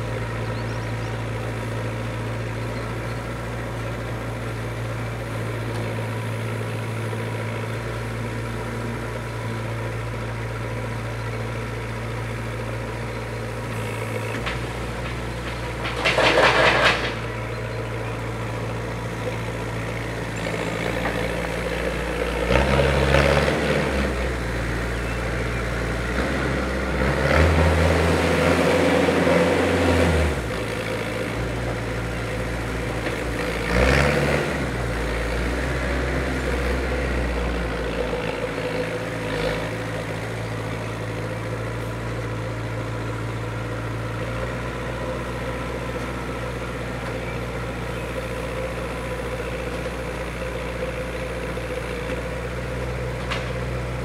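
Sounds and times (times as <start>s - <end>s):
mini loader engine running: 0.0s - 54.0s
loud clatter of load tipped: 14.4s - 17.5s.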